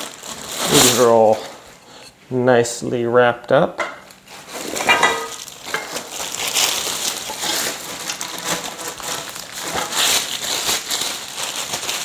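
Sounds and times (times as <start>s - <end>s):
plastic packaging crinkling: 0.0s - 1.7s, 4.1s - 12.0s.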